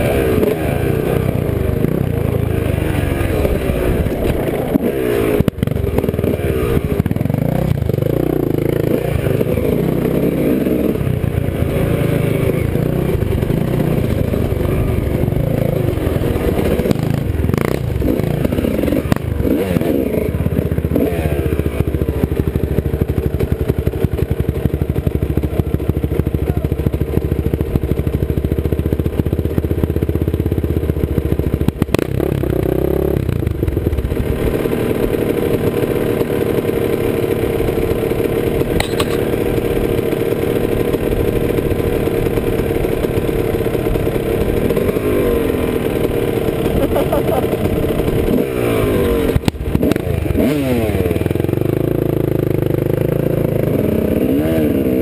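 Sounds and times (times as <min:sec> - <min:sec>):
off-road vehicle engine revving: 0:00.0 - 0:55.0.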